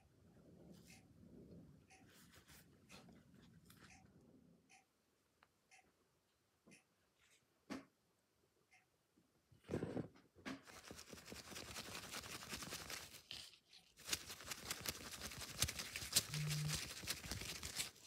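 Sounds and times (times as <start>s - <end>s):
corn husk rustling and tearing: 10.7s - 18.0s.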